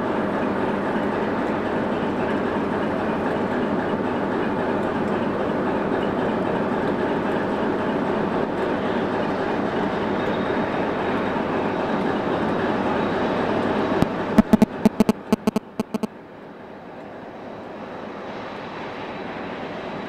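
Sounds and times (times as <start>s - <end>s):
diesel locomotive engine drone: 0.0s - 20.0s
sharp clicks: 14.4s - 16.1s.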